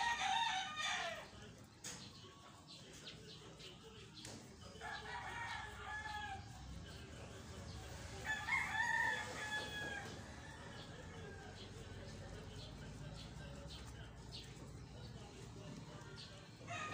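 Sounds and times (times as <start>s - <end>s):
rooster crowing: 8.2s - 11.6s.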